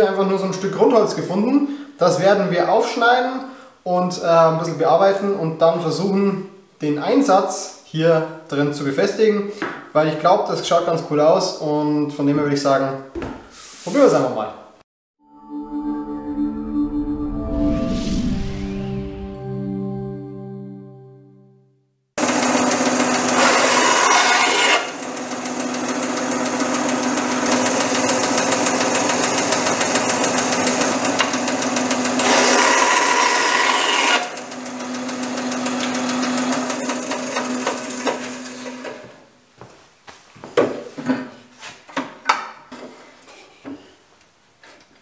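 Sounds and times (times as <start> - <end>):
bandsaw cutting wood: 22.2 - 39.2.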